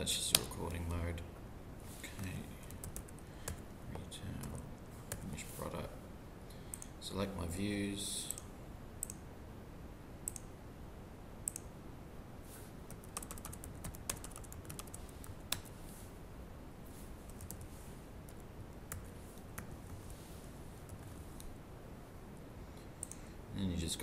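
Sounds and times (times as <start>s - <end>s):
faint room hiss: 0.0s - 24.0s
keyboard typing: 2.2s - 3.6s, 12.9s - 15.7s, 17.2s - 20.1s
computer mouse clicks: 8.3s - 9.2s, 10.2s - 10.5s, 11.4s - 11.7s, 23.0s - 23.2s.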